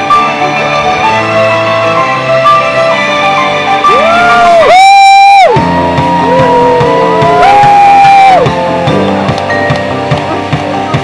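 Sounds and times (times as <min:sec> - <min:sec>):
sustained bending lead melody: 0:00.0 - 0:04.7, 0:05.5 - 0:11.0
steady beat: 0:03.9 - 0:11.0.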